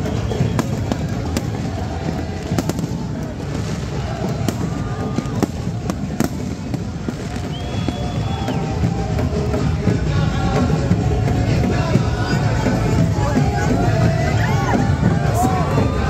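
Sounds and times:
firework whistling tones: 0:00.0 - 0:01.7, 0:02.5 - 0:09.3
crowd din: 0:00.0 - 0:16.0
fireworks bangs and crackles: 0:00.0 - 0:16.0.

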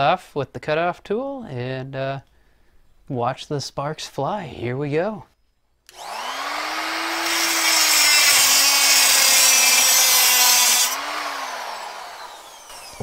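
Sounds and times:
abrasive wheel cutting sheet metal: 0:05.9 - 0:13.0
cutoff tool motor whine: 0:05.9 - 0:13.0.

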